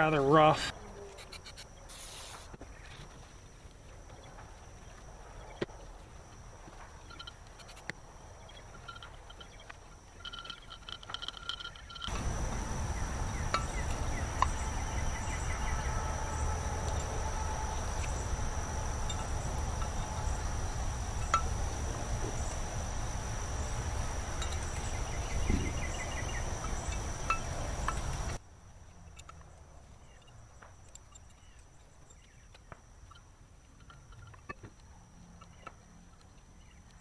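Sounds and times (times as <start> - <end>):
light metallic clinks: 7.0 - 12.5, 13.3 - 22.7, 23.6 - 28.4, 29.0 - 37.0
high-pitched insect drone: 7.0 - 28.4
low rumbling noise: 11.9 - 28.4.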